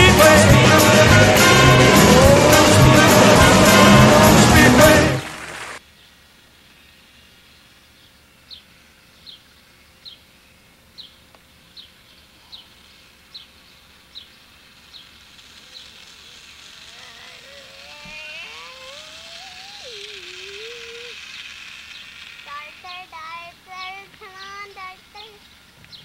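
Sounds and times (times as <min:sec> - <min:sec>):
toy car electric motor whine: 0:00.0 - 0:05.8, 0:14.1 - 0:25.4.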